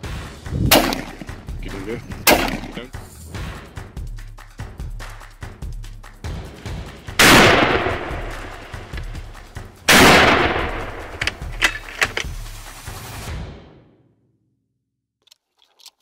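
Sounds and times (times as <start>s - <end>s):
rifle shots with rolling echo: 0.7s - 1.4s, 2.3s - 2.8s, 7.2s - 9.0s, 9.9s - 12.0s.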